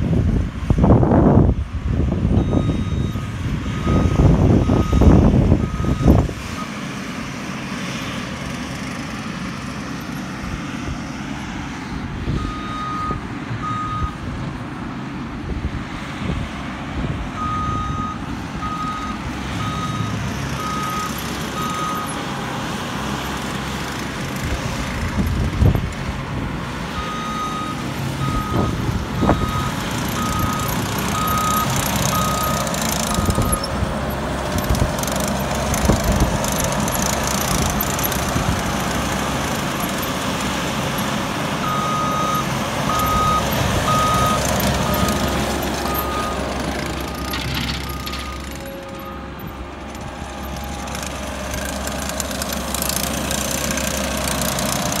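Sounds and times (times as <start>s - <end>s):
engine running: 0.0s - 55.0s
reverse alarm beeping: 2.4s - 3.2s, 3.8s - 6.2s, 27.0s - 33.8s, 41.6s - 46.4s, 47.0s - 49.6s.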